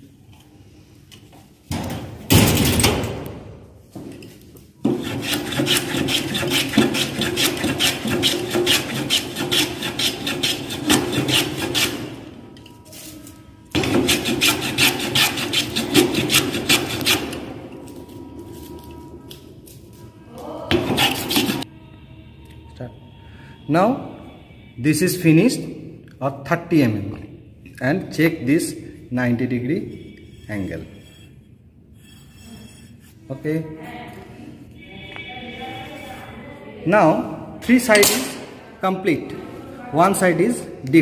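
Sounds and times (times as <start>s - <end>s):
hand plane rasping wood: 4.9s - 12.0s, 13.8s - 17.3s, 20.8s - 21.6s.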